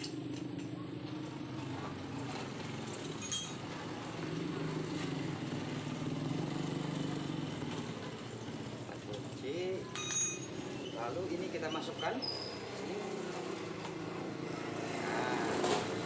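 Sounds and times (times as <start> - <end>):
light metal clink: 2.9 - 3.7, 9.9 - 10.6.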